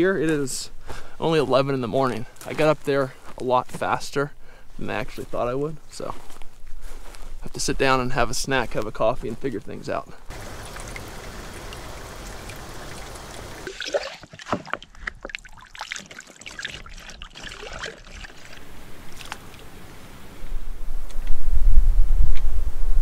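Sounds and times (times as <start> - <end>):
water poured into plastic bag: 10.3 - 14.4, 15.3 - 19.4
water trickling and dripping: 10.3 - 19.7
wind rumble on microphone: 18.6 - 23.0.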